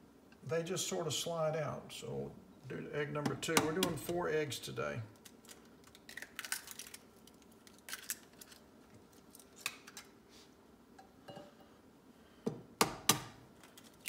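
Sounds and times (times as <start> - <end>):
eggshell clicks and crackles: 5.1 - 10.2.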